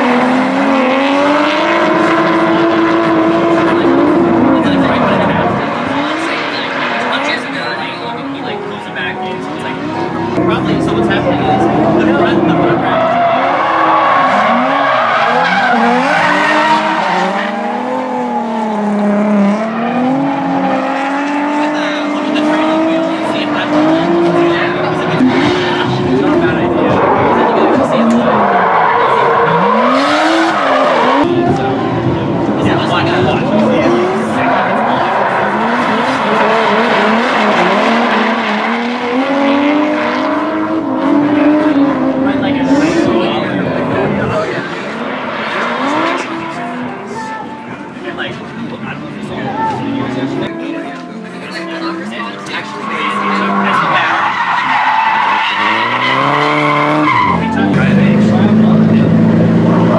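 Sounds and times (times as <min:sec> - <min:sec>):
car engines revving: 0:00.0 - 0:59.9
tyres skidding and squealing: 0:00.0 - 0:59.9
tyres squealing: 0:51.7 - 0:57.8.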